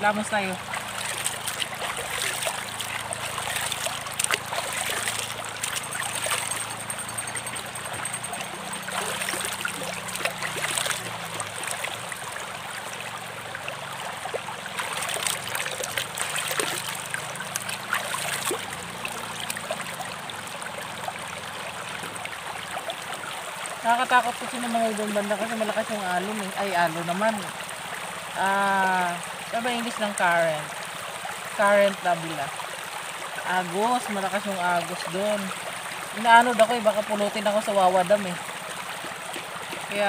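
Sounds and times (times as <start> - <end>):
river flowing over rocks: 0.0 - 40.0
water splashes poured by hand: 0.3 - 13.1, 14.2 - 23.2.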